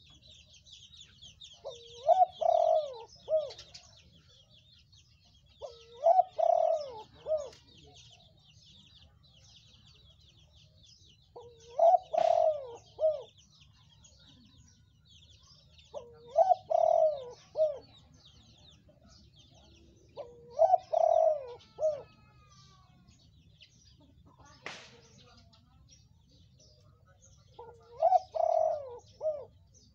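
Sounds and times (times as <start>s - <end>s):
dove cooing: 1.5s - 4.0s, 5.6s - 8.3s, 11.3s - 13.4s, 15.9s - 18.1s, 20.1s - 22.8s, 27.5s - 29.7s.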